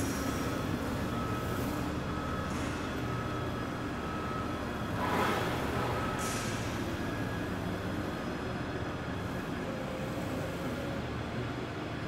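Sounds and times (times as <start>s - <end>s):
wheeled transporter humming: 0.0s - 12.0s.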